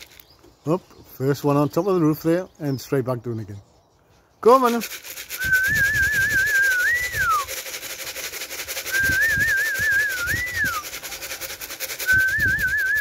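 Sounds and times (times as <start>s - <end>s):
whistled trill call: 5.3s - 7.7s, 8.7s - 13.0s.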